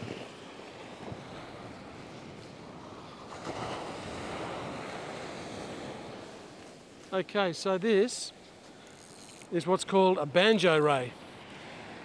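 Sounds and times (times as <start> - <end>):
surf washing on a sandy beach: 0.0 - 12.0.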